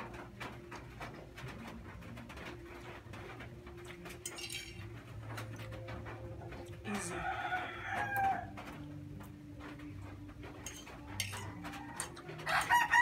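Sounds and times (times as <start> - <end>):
fork clinking on a plate: 4.2 - 4.9, 10.6 - 12.2
rooster crowing: 6.9 - 8.7, 11.3 - 13.0.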